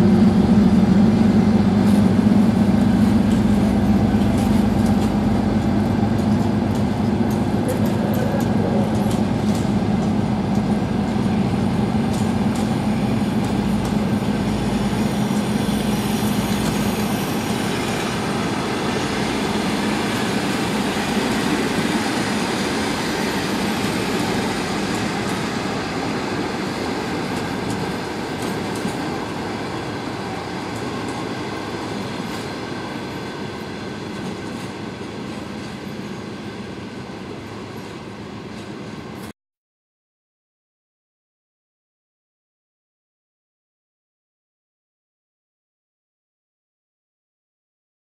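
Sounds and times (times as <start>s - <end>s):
train coaches rolling past: 0.0s - 39.3s.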